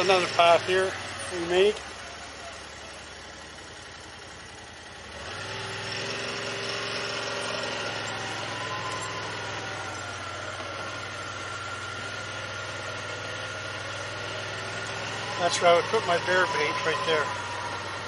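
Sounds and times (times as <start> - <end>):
vehicle engine running: 0.0 - 18.0
thin steady whine: 6.9 - 18.0.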